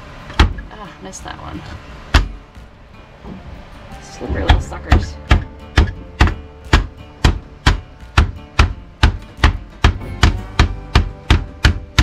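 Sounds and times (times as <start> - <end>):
sharp blows on plastic cutting board: 5.3 - 12.0.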